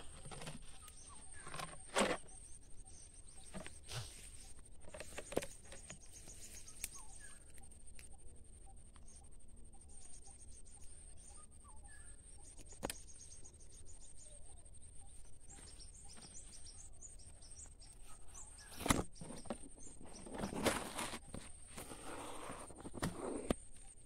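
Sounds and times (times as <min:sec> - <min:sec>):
faint bird chirps: 0:00.0 - 0:24.0
leaves rustling against phone: 0:18.6 - 0:23.5.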